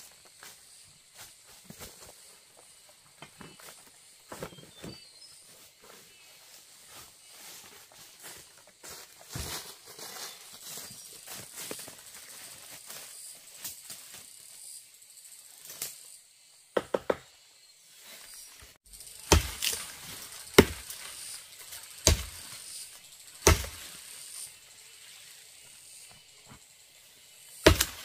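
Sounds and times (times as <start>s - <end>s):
forest insects chirring: 0.0s - 28.0s
heavy chopping blows: 19.1s - 21.4s, 22.0s - 22.6s, 23.4s - 24.0s, 27.6s - 28.0s.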